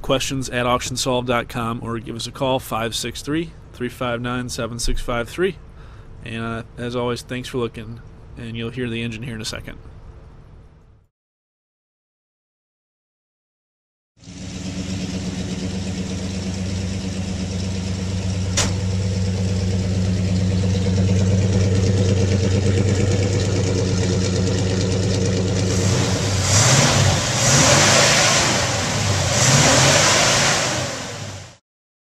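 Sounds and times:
car engine idling and revving: 14.2 - 31.6.

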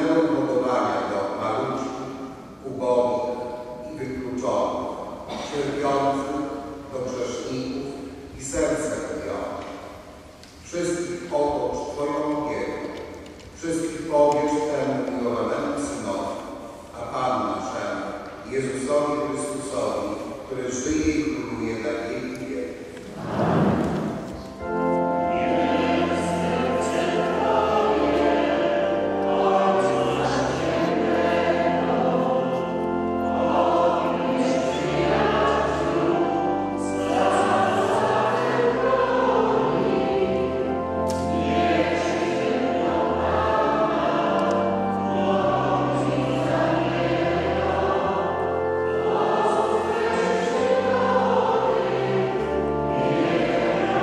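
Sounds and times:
choir singing a hymn: 0.0 - 10.0, 13.6 - 54.0
sustained low accompanying notes: 17.0 - 54.0.

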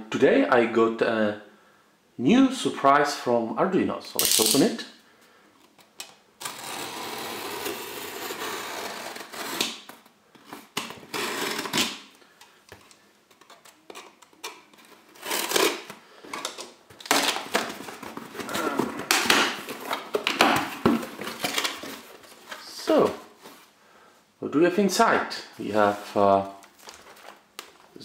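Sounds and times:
knife slicing packing tape: 6.4 - 10.0, 10.8 - 12.0, 15.1 - 15.9
cardboard flaps rustling: 14.7 - 23.7, 25.7 - 28.0.

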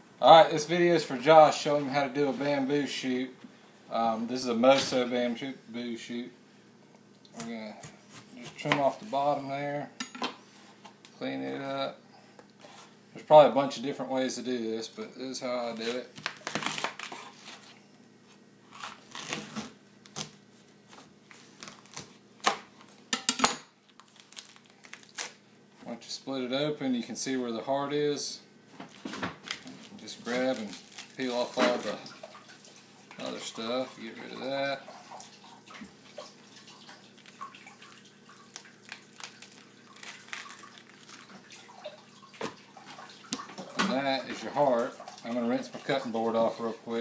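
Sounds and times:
bamboo shoot cracking and tearing: 24.0 - 25.4, 30.4 - 31.6, 38.5 - 41.3.

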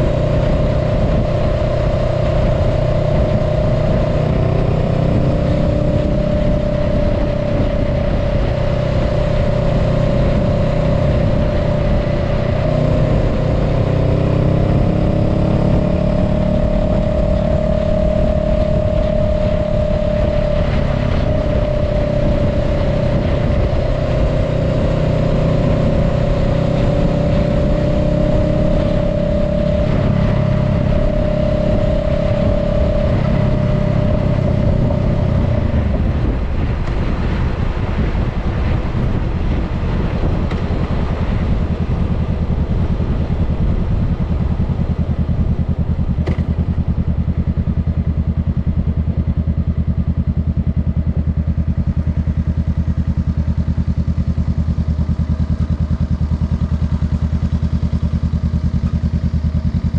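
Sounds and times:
motorcycle engine cruising: 0.0 - 59.9
road and wind noise: 0.0 - 59.9.

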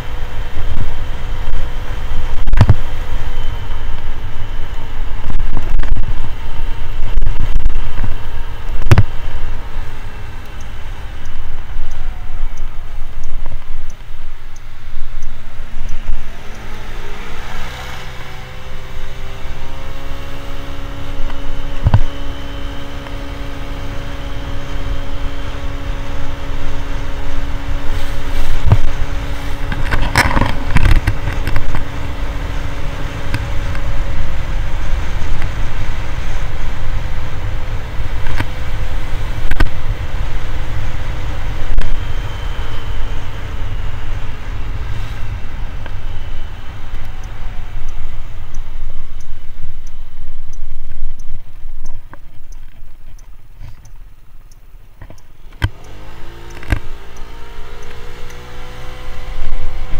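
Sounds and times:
wind rumble on microphone: 0.0 - 10.4, 23.8 - 53.8.

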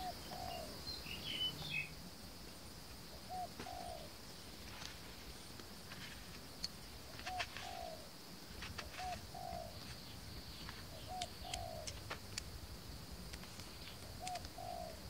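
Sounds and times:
dove cooing: 0.0 - 0.8, 3.1 - 4.2, 7.1 - 8.1, 8.8 - 9.9, 10.9 - 12.0, 13.8 - 15.0
steady high hiss: 0.0 - 15.0.

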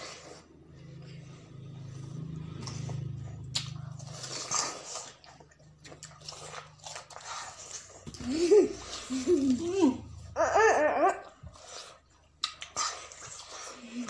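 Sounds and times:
slurping and sucking: 0.0 - 10.0, 11.2 - 14.0
people crunching watermelon: 2.4 - 10.0, 10.6 - 14.0.

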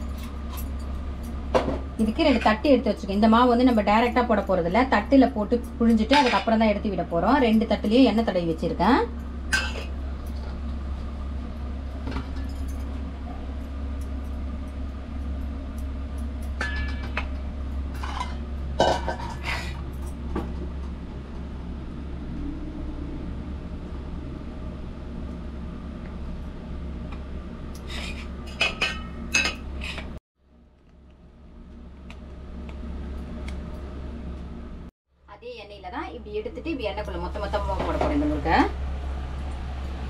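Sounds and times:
steady low hum: 0.0 - 40.0
steel kitchenware clinking: 5.6 - 6.8, 16.4 - 19.7.

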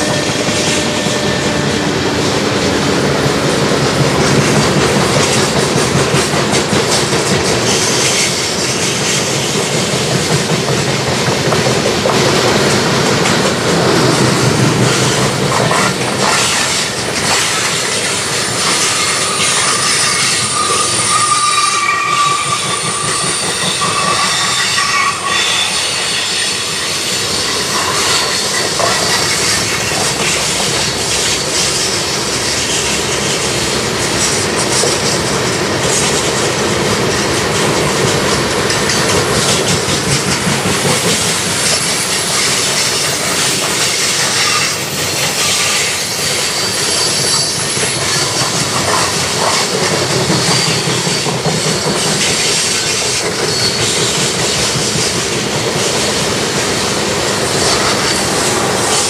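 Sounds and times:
train wheels rumbling on rails: 0.0 - 59.0
high-pitched wheel squeal: 18.6 - 29.6, 41.0 - 54.3.

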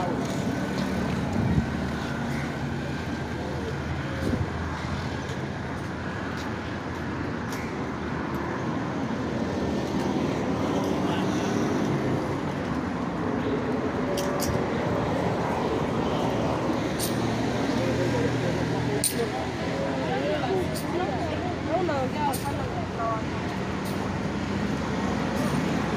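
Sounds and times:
road traffic hum: 0.0 - 25.9
vehicles passing: 0.0 - 25.9.

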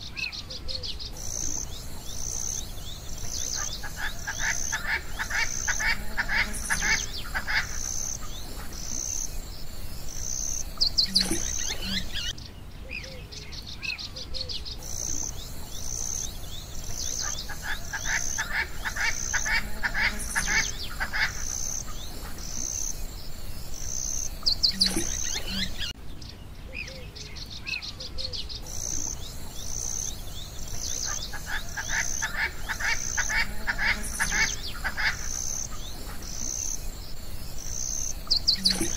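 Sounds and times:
short bird chirps: 0.0 - 12.4, 23.6 - 26.0.

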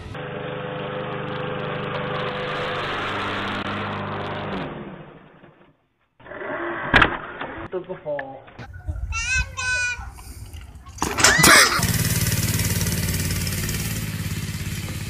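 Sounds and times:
lawn mower engine running: 0.0 - 5.4, 9.2 - 15.0.

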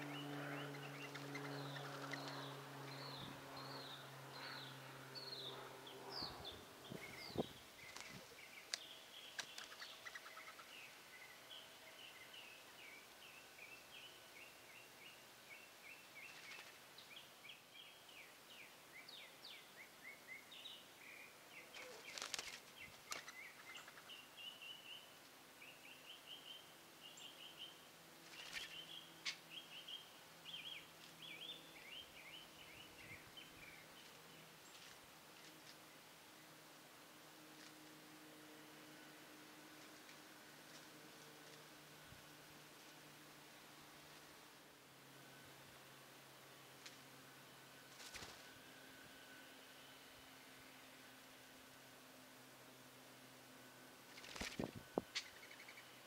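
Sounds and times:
wings flurry: 0.0 - 10.7, 16.2 - 17.0, 21.6 - 24.1, 28.2 - 29.4, 47.9 - 48.6, 54.1 - 55.7
songbirds chirping: 0.0 - 56.0.

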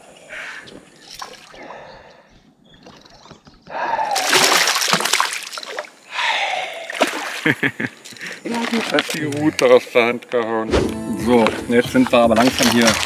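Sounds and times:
fish splashing in water: 4.0 - 6.0, 12.4 - 13.0.

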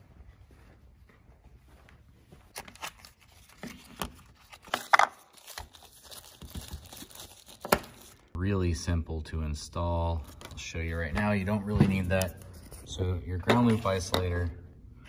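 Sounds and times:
paper rustling: 2.5 - 8.3.

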